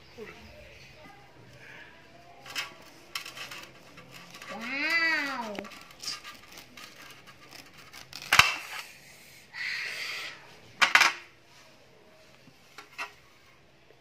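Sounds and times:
crisp rasp of watermelon rind: 0:03.6 - 0:09.0.

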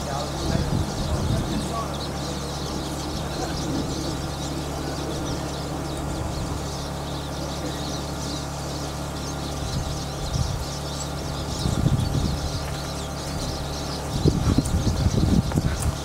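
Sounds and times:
birds twittering: 0:00.0 - 0:16.0
low hum: 0:00.0 - 0:16.0.

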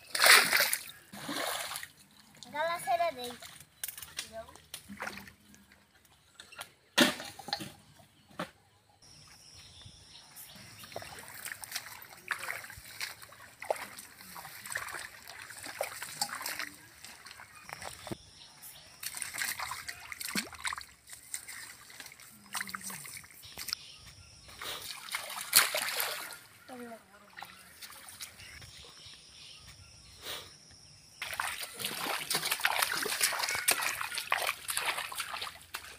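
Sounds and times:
muddy water splashing and sloshing: 0:00.0 - 0:06.1, 0:10.4 - 0:23.8, 0:24.5 - 0:28.7, 0:31.2 - 0:35.9.

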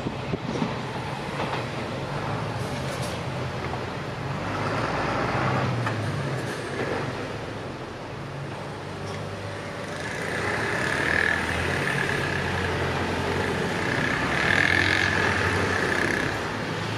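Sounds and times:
cars passing: 0:00.0 - 0:16.9
motor scooters passing: 0:09.5 - 0:16.9.

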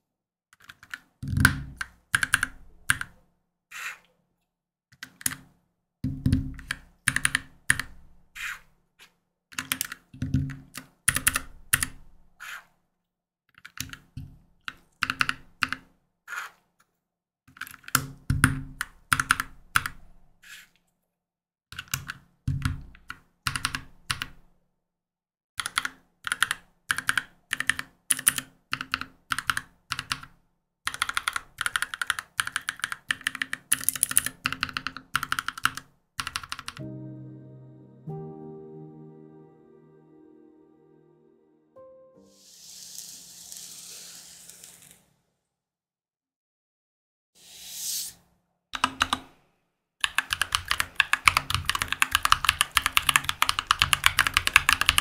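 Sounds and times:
mechanical keyboard typing: 0:00.6 - 0:03.2, 0:05.0 - 0:05.4, 0:06.2 - 0:08.0, 0:09.5 - 0:12.0, 0:13.6 - 0:15.8, 0:17.5 - 0:20.0, 0:21.8 - 0:24.4, 0:25.6 - 0:30.3, 0:30.9 - 0:36.8, 0:48.8 - 0:49.3, 0:50.0 - 0:55.0.

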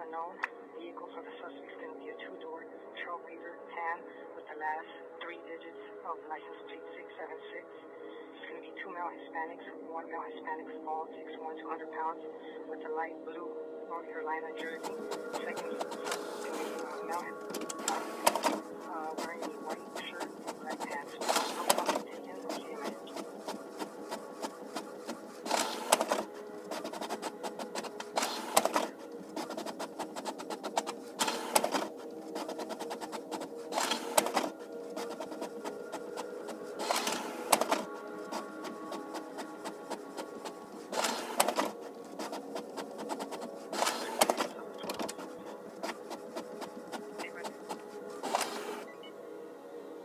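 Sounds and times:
fax machine printing: 0:14.6 - 0:49.1.

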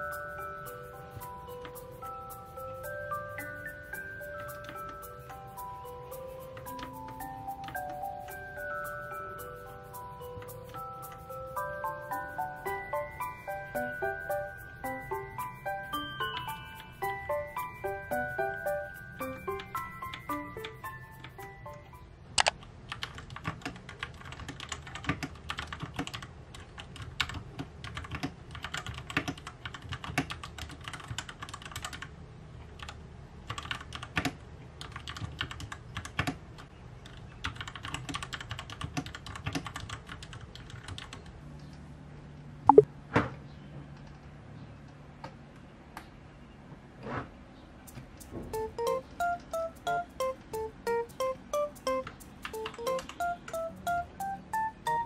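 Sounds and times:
mechanical keyboard clacking: 0:22.4 - 0:32.1, 0:32.8 - 0:41.3, 0:47.9 - 0:55.0.

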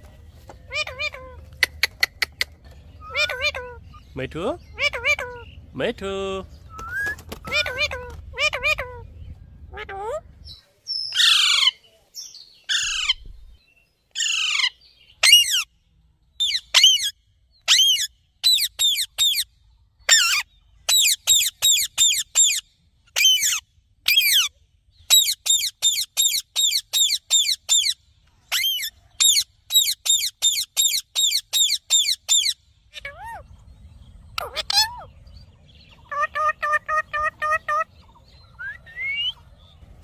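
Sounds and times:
parakeet screeching and calling: 0:00.7 - 0:01.4, 0:03.0 - 0:05.6, 0:07.4 - 0:09.1, 0:11.1 - 0:11.8, 0:12.7 - 0:13.2, 0:14.2 - 0:15.7, 0:16.4 - 0:19.5, 0:20.1 - 0:33.5, 0:34.4 - 0:35.2, 0:36.0 - 0:38.0.

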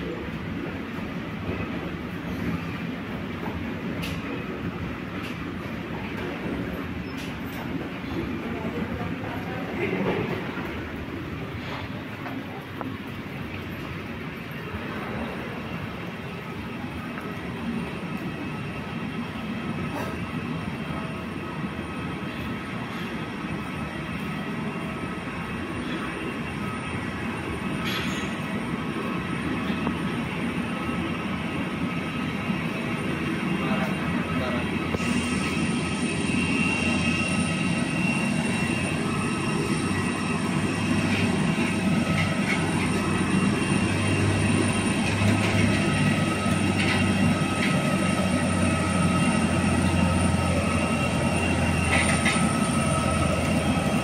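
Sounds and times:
aircraft turbine whine: 0:00.0 - 0:54.0
wide hiss: 0:35.0 - 0:37.4.

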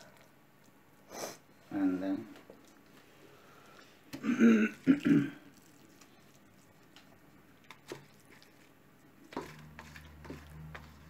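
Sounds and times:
man clearing throat: 0:04.2 - 0:05.4.

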